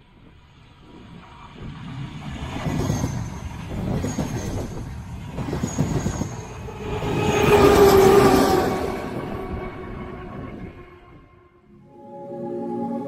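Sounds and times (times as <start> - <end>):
diesel locomotive engine drone: 0.0 - 13.0
train coaches clattering over rails: 1.3 - 9.6.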